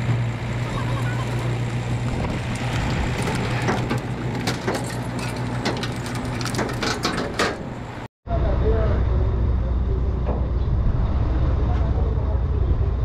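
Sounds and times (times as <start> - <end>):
engine running: 0.0 - 13.0
metallic clicks and knocks: 3.2 - 8.0.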